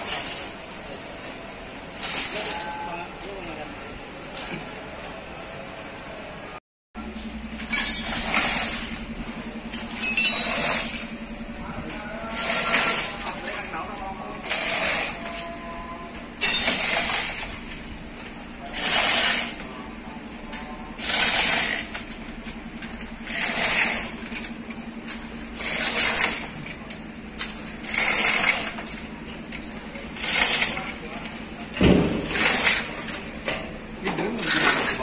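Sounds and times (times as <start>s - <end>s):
chain rattling through hoist block: 0.0s - 0.5s, 1.9s - 2.7s, 7.6s - 11.2s, 16.4s - 17.5s
steady low hum: 0.0s - 35.0s.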